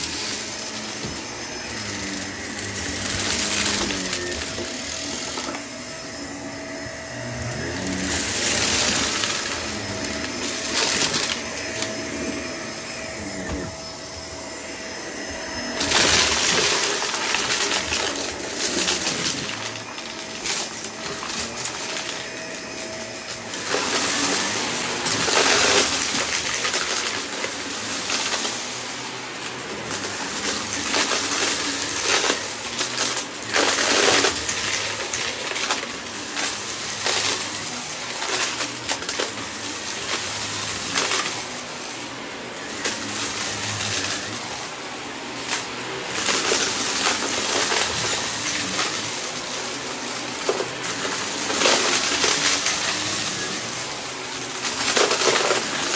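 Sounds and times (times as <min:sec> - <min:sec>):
debris crackling in vacuum: 0:00.0 - 0:05.8, 0:07.1 - 0:13.7, 0:15.4 - 0:55.9
vacuum cleaner running: 0:00.0 - 0:55.9.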